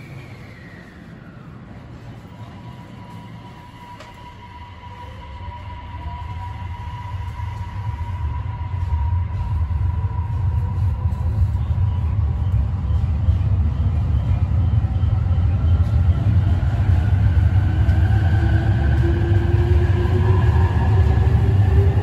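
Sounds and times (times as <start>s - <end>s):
train rumble: 0.0s - 22.0s
train motor whine: 1.7s - 11.7s.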